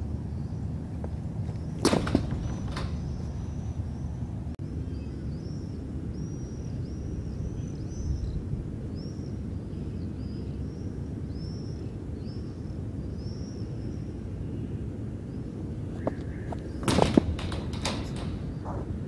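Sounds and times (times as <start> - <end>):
bird chirping: 1.4 - 8.4.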